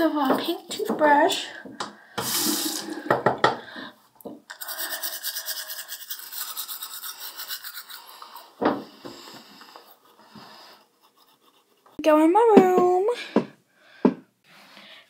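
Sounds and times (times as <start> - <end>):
toothbrush scrubbing teeth: 4.5 - 12.0.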